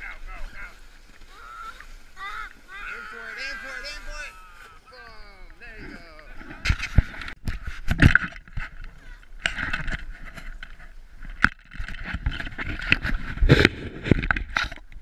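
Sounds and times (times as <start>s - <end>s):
footsteps crunching in snow: 0.0s - 5.0s.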